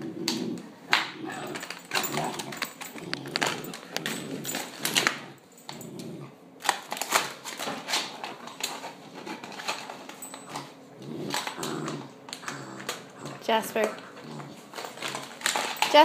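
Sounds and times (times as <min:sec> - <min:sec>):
puppy growling: 0:00.0 - 0:06.6, 0:09.0 - 0:16.0.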